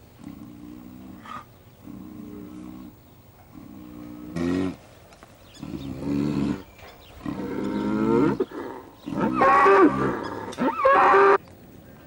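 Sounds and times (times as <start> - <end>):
cattle mooing: 7.2 - 11.4.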